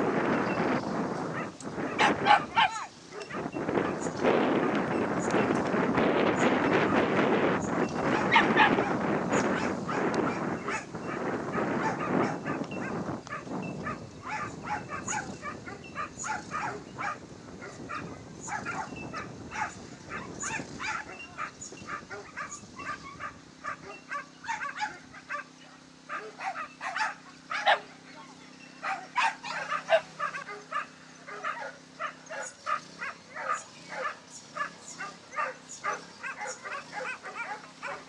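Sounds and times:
wind buffeting microphone: 0.0s - 25.3s
dogs yipping and barking: 0.0s - 38.0s.

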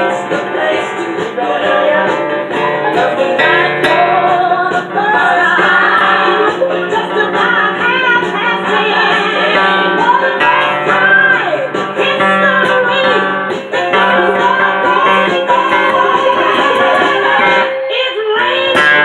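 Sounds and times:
man singing: 0.0s - 2.2s
strummed acoustic guitar: 0.0s - 17.7s, 18.4s - 19.0s.

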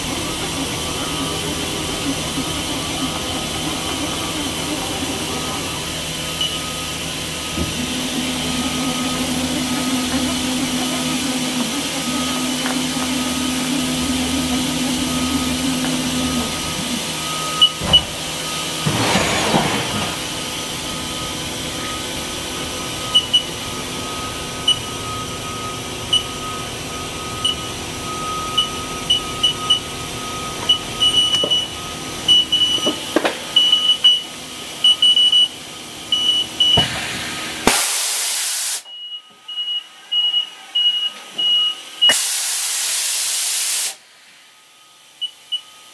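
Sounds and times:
machine humming: 0.0s - 38.1s
loud hiss of air: 36.8s - 38.9s, 42.1s - 44.4s.

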